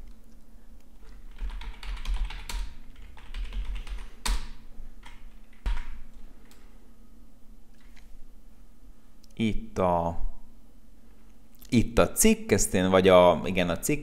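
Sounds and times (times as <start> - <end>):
computer keyboard typing: 1.0 - 6.6.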